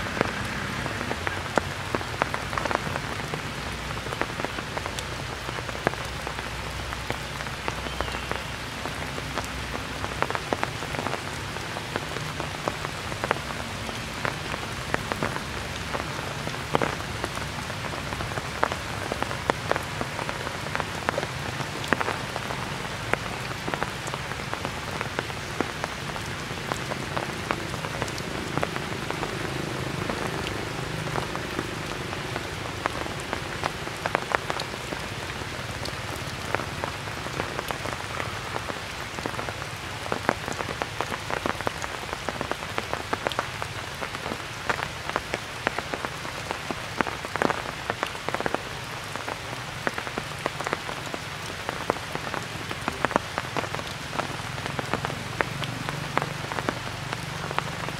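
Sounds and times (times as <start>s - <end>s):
raindrops ticking close by: 0.0s - 57.9s
steady rain hiss: 0.0s - 57.9s.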